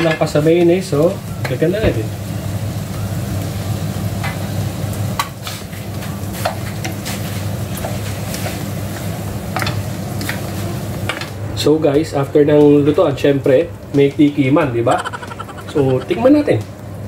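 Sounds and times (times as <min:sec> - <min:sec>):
food sizzling in a frying pan: 0:00.0 - 0:15.7.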